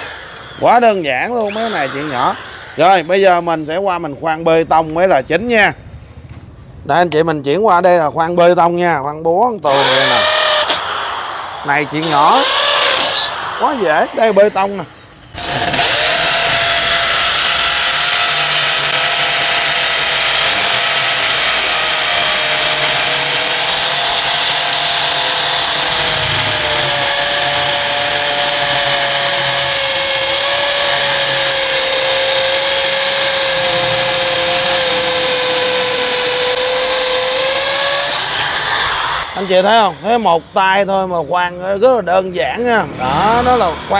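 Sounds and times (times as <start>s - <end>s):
hammer drill drilling into concrete: 0.0s - 4.1s, 9.7s - 40.6s.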